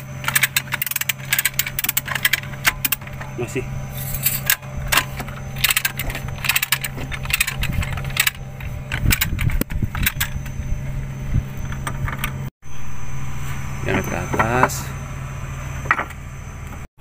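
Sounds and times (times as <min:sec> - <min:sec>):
chain hoist clicking: 0:00.0 - 0:10.5
low engine hum: 0:00.0 - 0:16.9
chain rattle: 0:00.2 - 0:10.5.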